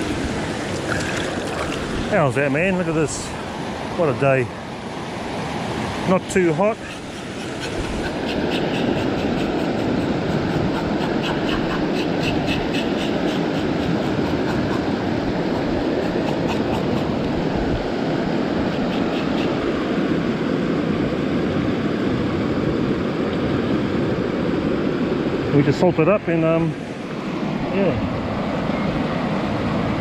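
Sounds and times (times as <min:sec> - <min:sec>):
river flowing over stones: 0:00.0 - 0:06.7.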